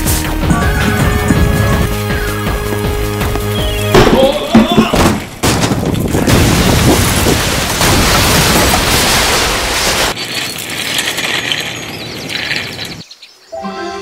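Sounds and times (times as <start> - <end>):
rumble of blasting and collapsing: 5.8 - 10.1
steady outdoor noise: 9.9 - 14.0.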